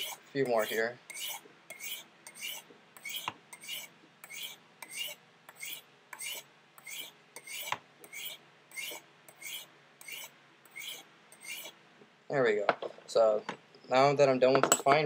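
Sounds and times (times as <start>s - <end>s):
knife scraping on ceramic rods: 0.0s - 11.8s.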